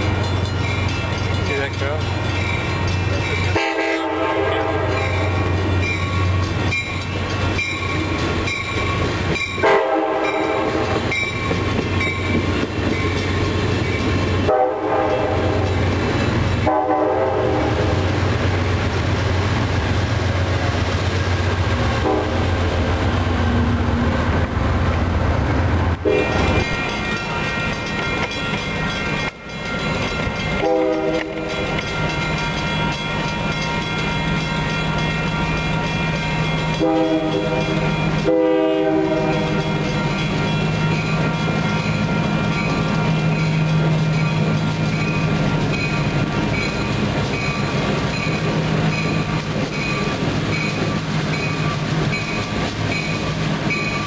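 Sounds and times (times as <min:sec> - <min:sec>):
locomotive engine rumble: 0:00.0 - 0:54.0
passenger train passing: 0:00.0 - 0:54.0
train horn blasts: 0:03.5 - 0:05.5, 0:09.6 - 0:11.2, 0:14.4 - 0:15.8, 0:16.6 - 0:18.0, 0:22.0 - 0:22.6, 0:26.0 - 0:26.6, 0:30.6 - 0:31.7, 0:36.7 - 0:39.6.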